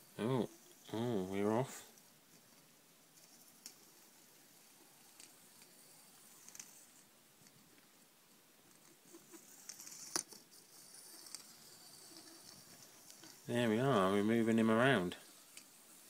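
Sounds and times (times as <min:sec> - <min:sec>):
robot ball rolling on floor: 0:09.0 - 0:16.0.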